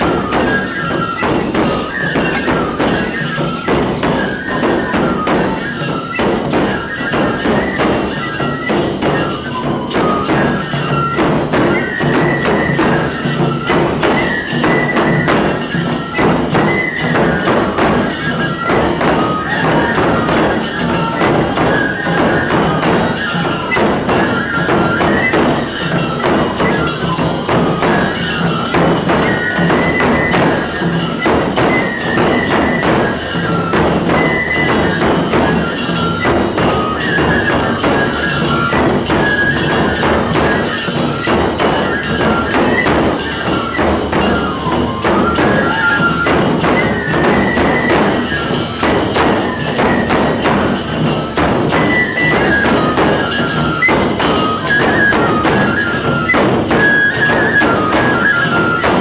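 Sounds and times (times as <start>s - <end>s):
bamboo flutes playing melody: 0.0s - 59.0s
hand cymbals clashing: 0.0s - 59.0s
large drums beating: 0.0s - 59.0s.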